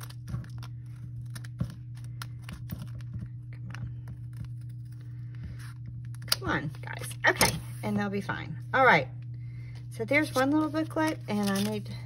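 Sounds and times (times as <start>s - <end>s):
scissors snipping paper: 0.0s - 5.0s, 10.2s - 12.0s
steady low hum: 0.0s - 12.0s.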